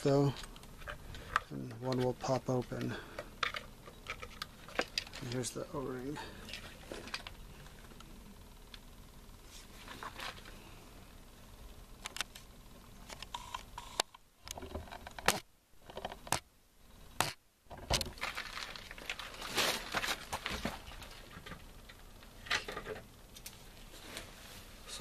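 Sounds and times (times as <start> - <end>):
rustle: 17.9 - 25.0.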